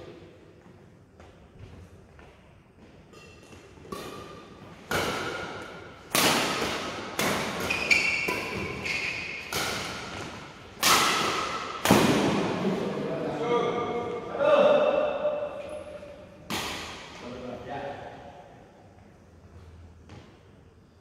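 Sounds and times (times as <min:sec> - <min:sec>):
rackets hitting shuttlecock: 0:03.0 - 0:12.6, 0:14.8 - 0:17.4.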